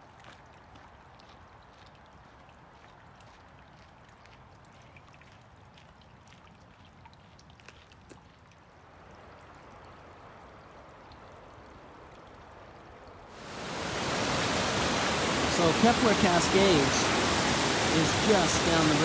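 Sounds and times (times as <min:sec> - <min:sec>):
light water ticks: 0:00.0 - 0:13.4
creek trickling over rocks: 0:00.0 - 0:19.0.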